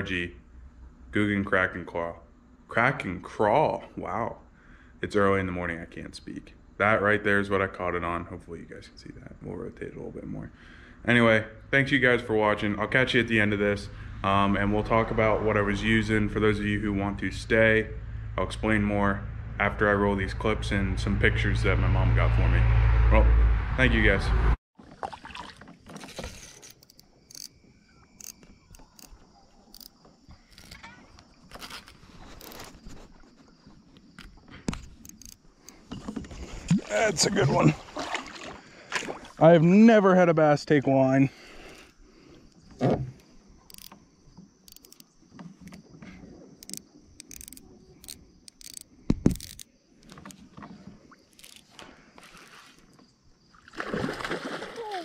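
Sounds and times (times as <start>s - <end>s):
high-pitched insect chorus: 26.0s - 55.0s
fishing reel clicking: 26.4s - 27.6s, 28.2s - 30.8s, 35.0s - 35.4s, 43.7s - 44.0s, 44.6s - 45.1s, 46.6s - 49.7s, 51.3s - 51.7s.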